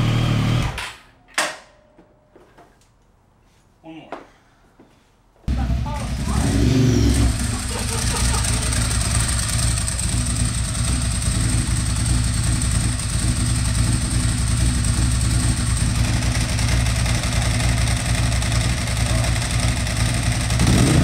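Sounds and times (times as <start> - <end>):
motorcycle engine idling: 5.5 - 21.0.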